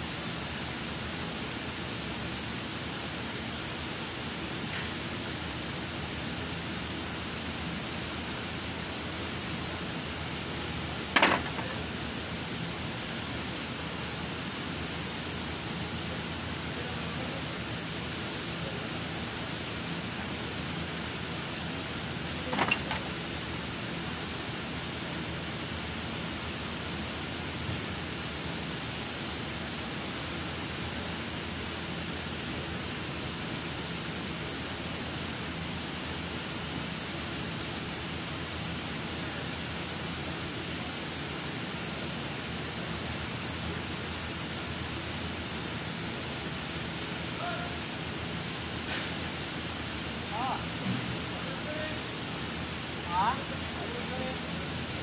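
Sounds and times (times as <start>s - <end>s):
shop fan running: 0.0s - 55.0s
tool clattering: 11.2s - 11.8s, 22.5s - 23.2s.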